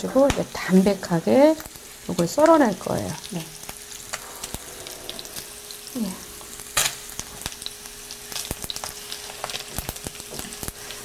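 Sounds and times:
fat sizzling in a frying pan: 0:00.0 - 0:11.0.

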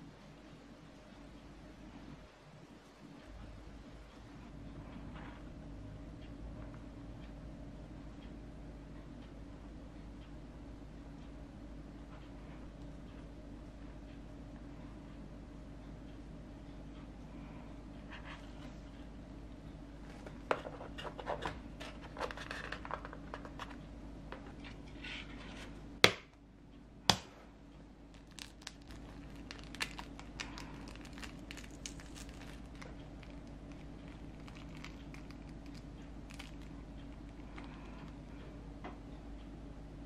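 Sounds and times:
egg carton rustling and clicks: 0:20.1 - 0:23.8.

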